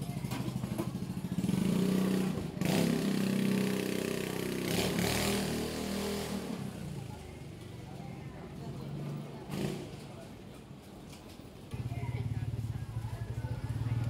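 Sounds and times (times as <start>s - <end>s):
motorcycle engine revving: 0.5s - 7.1s, 9.5s - 10.0s, 11.8s - 14.0s.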